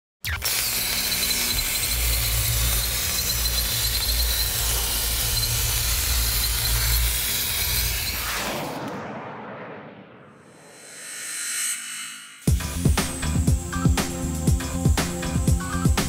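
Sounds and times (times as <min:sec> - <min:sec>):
plasma cutter arc hissing: 0:00.3 - 0:08.5, 0:12.4 - 0:16.0.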